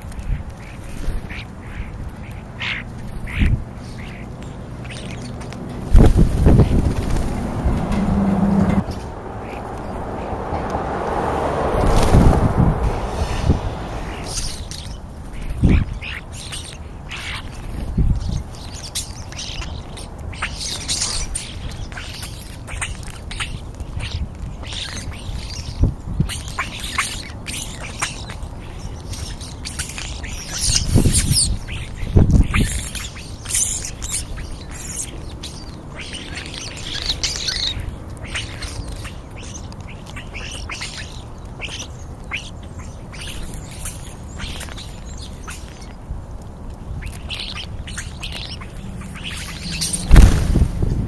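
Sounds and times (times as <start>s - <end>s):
starlings chattering and squawking: 0.0s - 51.0s
low thumps: 49.8s - 51.0s.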